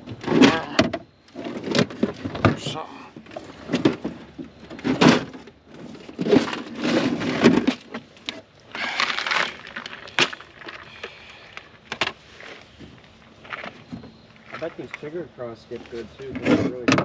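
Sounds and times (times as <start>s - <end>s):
plastic tackle box clattering: 0.2s - 10.9s, 16.2s - 17.0s.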